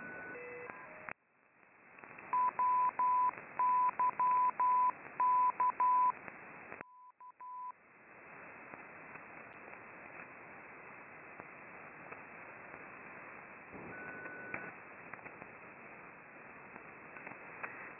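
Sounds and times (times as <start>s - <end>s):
radio band noise hiss: 7.8s - 17.9s.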